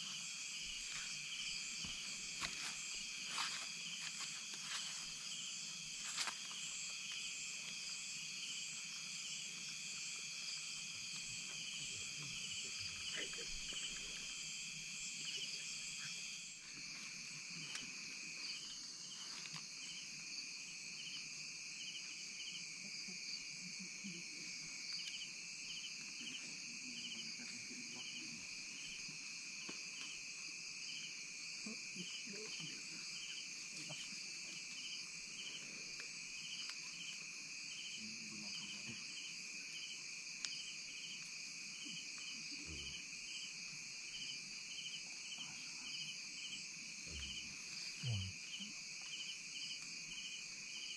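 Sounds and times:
night insects trilling: 0.0s - 50.9s
pulsing insect chirp: 0.0s - 50.9s.

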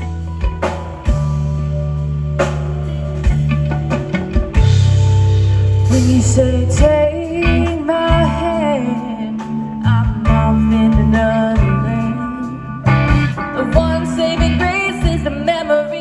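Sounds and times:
bass: 0.0s - 16.0s
drums: 0.0s - 16.0s
electric guitar: 0.0s - 16.0s
keyboard: 0.0s - 16.0s
woman singing: 5.8s - 16.0s.

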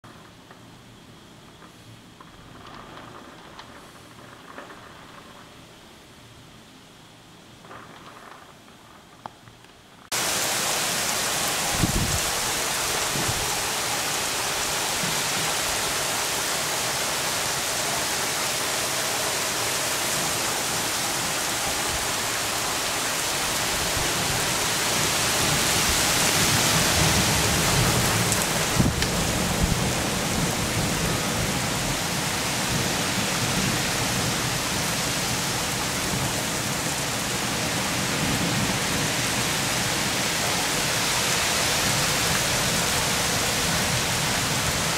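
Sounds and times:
heavy rain pouring: 1.6s - 5.8s, 10.0s - 44.9s.

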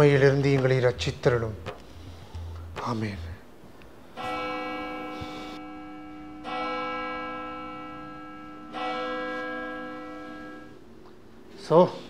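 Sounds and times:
church bell tolling: 4.2s - 11.0s.

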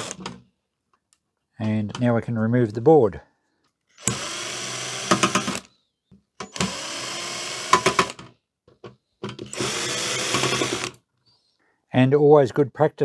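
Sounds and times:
cordless drill spinning out screws: 0.0s - 0.2s, 4.0s - 5.7s, 6.4s - 8.2s, 9.5s - 11.0s
drill clicking: 0.0s - 0.4s, 4.0s - 5.7s, 6.4s - 8.2s, 9.5s - 11.0s.

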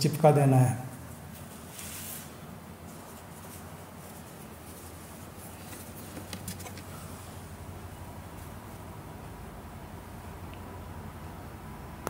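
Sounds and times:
steady low hum: 0.0s - 12.0s
light taps and rustles: 5.6s - 7.0s.

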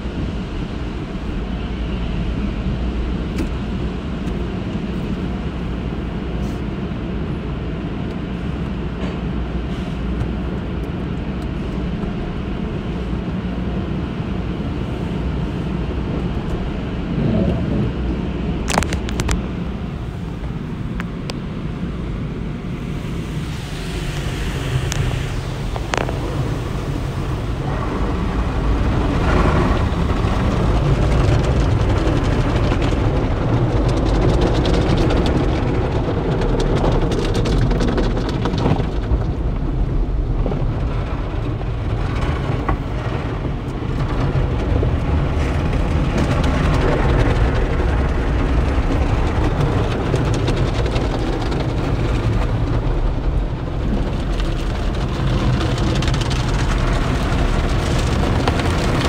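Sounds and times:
deep rumble: 0.0s - 59.0s
water spray on car: 21.6s - 59.0s.

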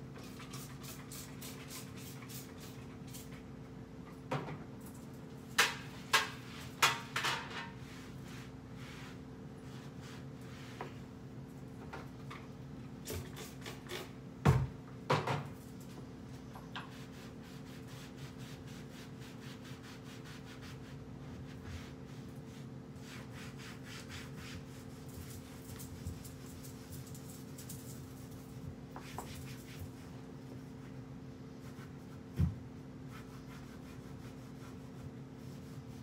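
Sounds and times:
cloth wiping wooden cabinets: 7.8s - 11.0s.

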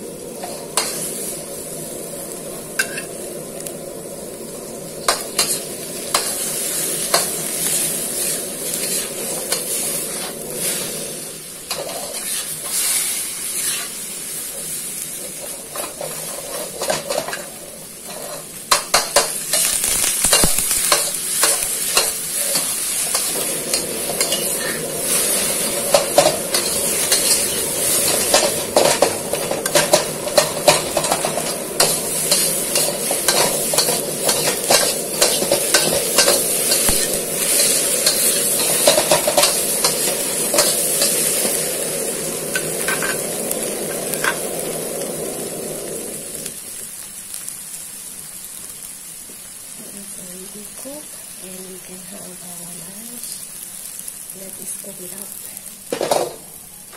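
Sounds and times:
food sizzling in a wok: 0.0s - 56.9s
metal spatula scraping a wok: 8.1s - 10.9s, 11.7s - 14.0s, 15.4s - 41.6s.

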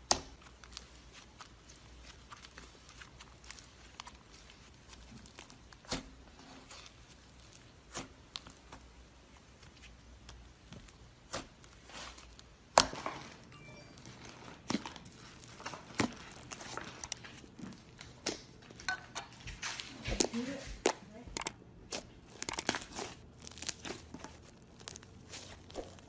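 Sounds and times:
hands kneading slime: 0.0s - 26.0s
slime popping and crackling: 20.8s - 26.0s.

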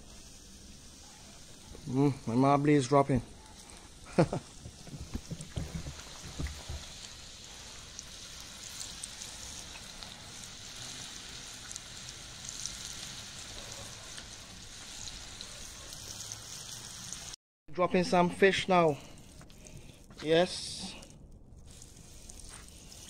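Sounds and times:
deep-frying oil sizzling: 5.1s - 17.4s, 21.6s - 23.0s.

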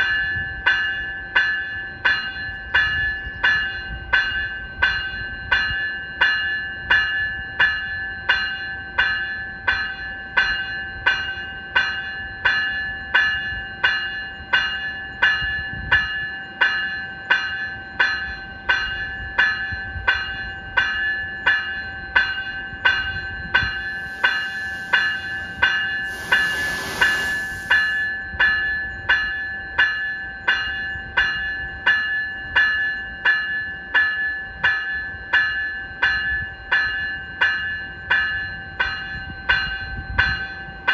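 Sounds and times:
electronic bell ringing: 23.0s - 28.3s
burst of hiss: 23.8s - 28.1s.

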